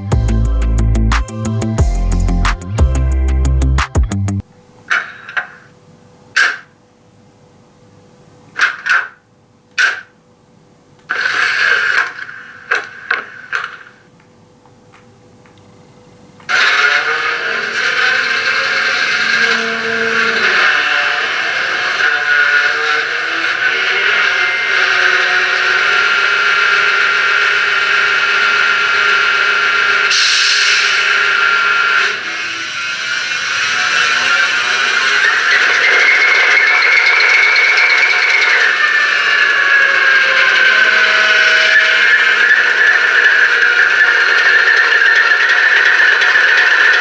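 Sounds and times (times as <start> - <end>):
compressed-air hisses: 30.1 - 31.0.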